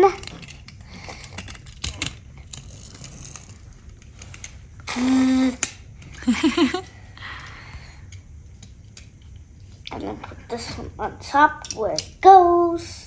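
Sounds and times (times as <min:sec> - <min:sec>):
toy vehicles clicking on tabletop: 0:00.0 - 0:04.6.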